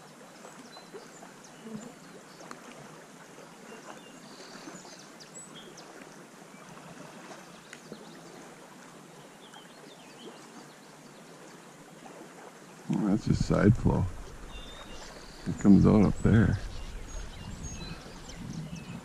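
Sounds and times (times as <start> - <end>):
creek water running: 0.0 - 19.0
faint bird chirps: 13.0 - 19.0.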